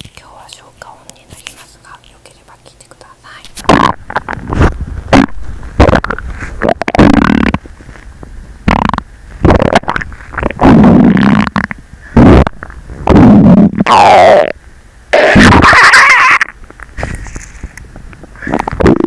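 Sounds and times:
stomach growling: 0:03.6 - 0:07.7, 0:08.6 - 0:14.6, 0:18.4 - 0:19.0.

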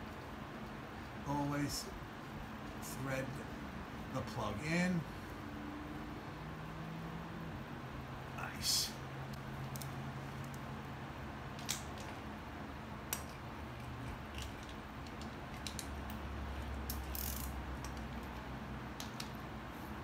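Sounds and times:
sharp metal clicks: 0:11.6 - 0:12.2, 0:13.1 - 0:19.4
hand ratchet clicking: 0:14.3 - 0:18.4.

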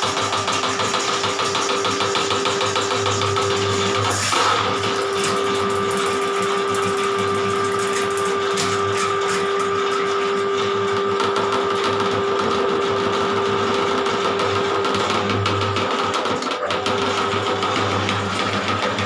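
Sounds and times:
drain-cleaning machine motor whine: 0:00.0 - 0:19.0.

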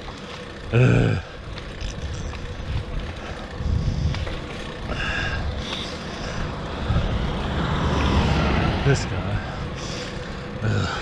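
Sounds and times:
bicycle tyres rolling on asphalt: 0:00.0 - 0:11.0
wind rumbling on microphone: 0:01.8 - 0:05.6, 0:06.4 - 0:08.8.

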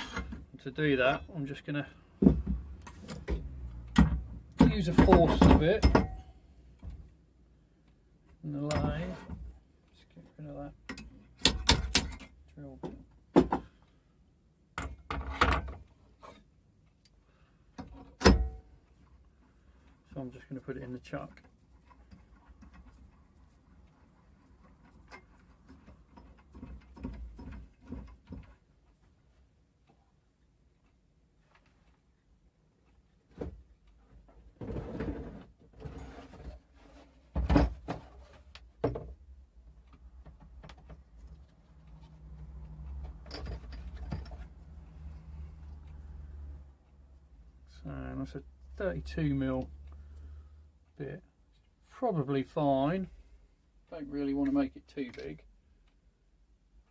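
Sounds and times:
metal clicks and clunks: 0:10.8 - 0:13.8, 0:14.7 - 0:17.1, 0:17.7 - 0:19.0, 0:37.3 - 0:44.8.

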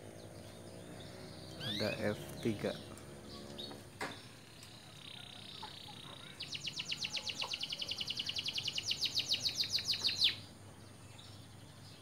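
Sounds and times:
canary trilling: 0:00.7 - 0:03.7, 0:04.8 - 0:10.4.

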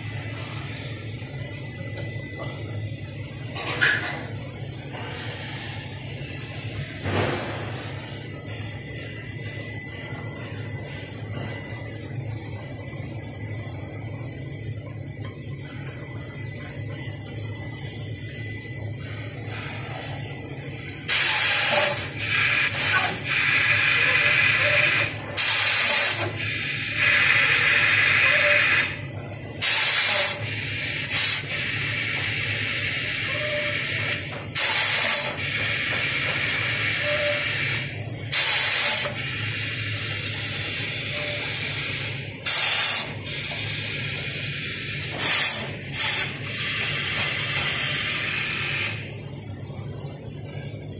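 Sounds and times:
steady low hum: 0:00.0 - 0:50.9
sharp air blasts: 0:07.0 - 0:08.2, 0:21.1 - 0:29.0, 0:29.6 - 0:49.0
compressed air hissing: 0:19.0 - 0:49.3.

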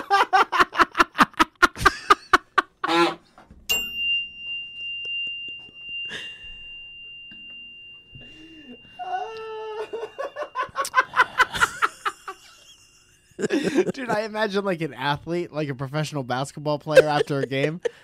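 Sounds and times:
men laughing: 0:00.0 - 0:03.2, 0:08.6 - 0:14.6, 0:16.9 - 0:18.0
high ringing tone: 0:03.7 - 0:18.0.

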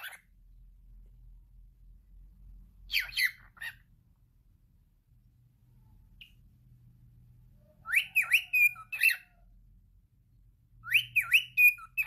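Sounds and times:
cockatiel whistling: 0:02.9 - 0:03.8, 0:07.8 - 0:09.3, 0:10.8 - 0:12.0.

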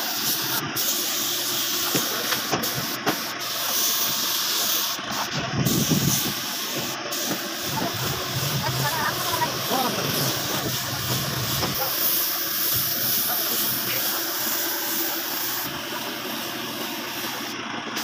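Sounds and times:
paint spray gun hissing: 0:00.0 - 0:18.0.

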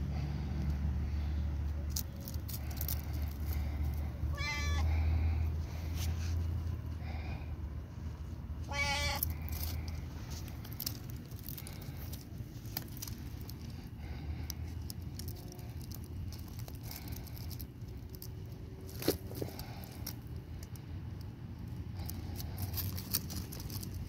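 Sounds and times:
cat meowing: 0:04.3 - 0:05.0, 0:08.7 - 0:09.4.

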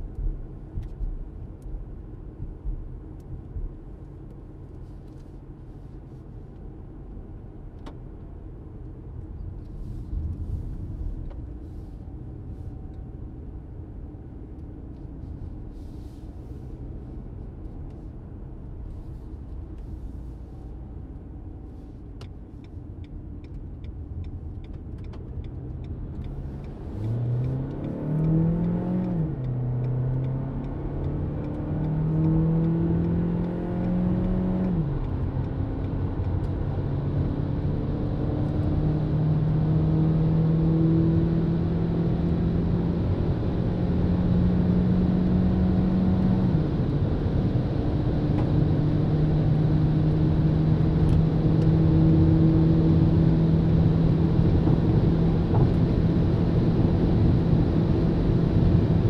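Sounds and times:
car engine accelerating: 0:23.4 - 0:59.0.

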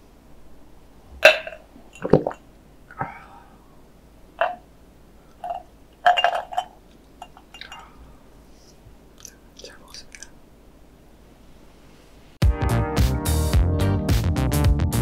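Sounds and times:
glass clinking: 0:01.2 - 0:02.4, 0:04.4 - 0:04.7, 0:05.4 - 0:08.0
swallowing gulps: 0:02.0 - 0:03.2.

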